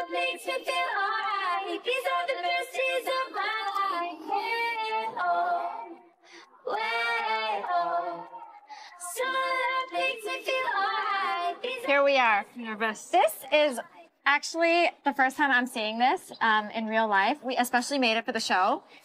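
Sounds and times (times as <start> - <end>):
woman singing pop song: 0.0 - 14.0.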